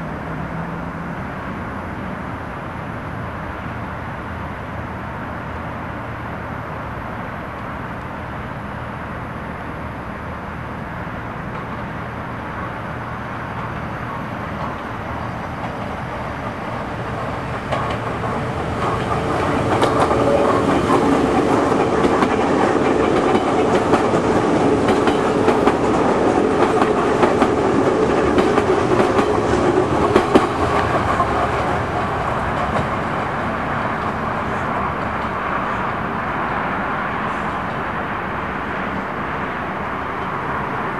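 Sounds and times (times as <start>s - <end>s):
metro train passing: 0.0s - 40.9s
wheels clacking over rail joints: 11.3s - 36.0s.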